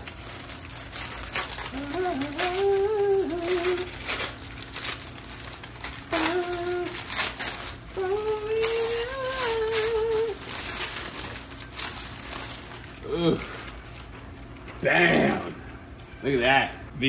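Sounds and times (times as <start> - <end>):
paper crinkling and rustling: 0.0 - 14.8
man humming: 1.7 - 4.0, 6.1 - 7.2, 7.9 - 10.4, 13.0 - 13.6.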